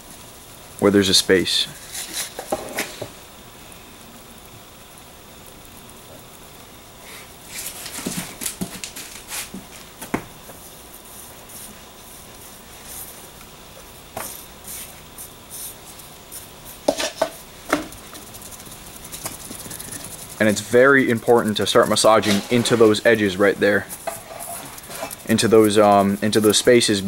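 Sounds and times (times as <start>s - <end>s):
wet concrete scraping: 14.7s - 27.0s.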